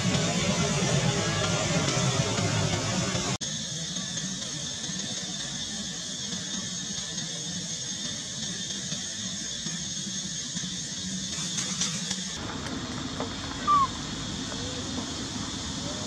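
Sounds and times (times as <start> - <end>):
steady background noise: 0.0 - 16.0.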